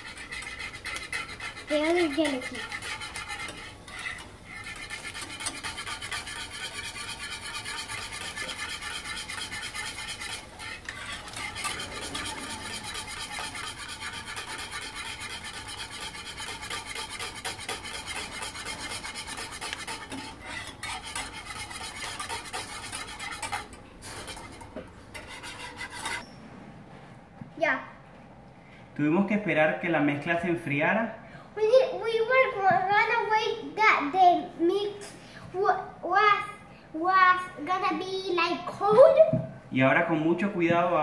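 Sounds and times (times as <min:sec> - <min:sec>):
whisk scraping a saucepan: 0:00.0 - 0:26.4.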